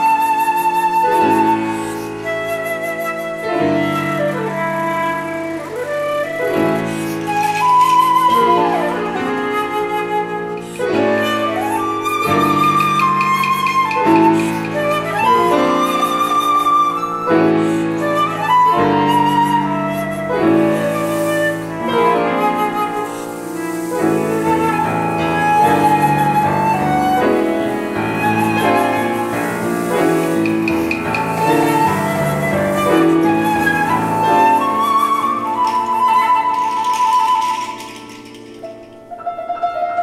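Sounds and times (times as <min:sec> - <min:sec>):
flute playing slow melody: 0:00.0 - 0:40.0
grand piano chords: 0:00.0 - 0:40.0.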